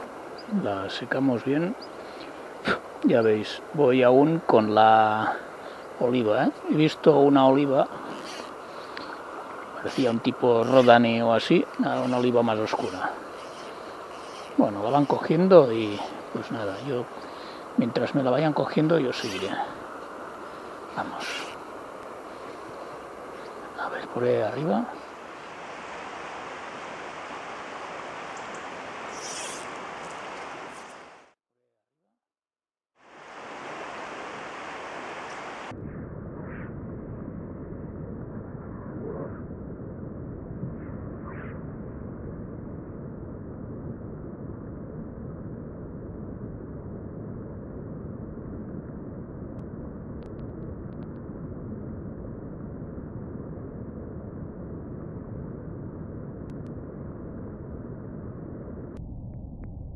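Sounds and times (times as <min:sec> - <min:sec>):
river water rushing: 0:07.6 - 0:31.3, 0:33.0 - 0:35.7
faint clicks: 0:08.2 - 0:09.2.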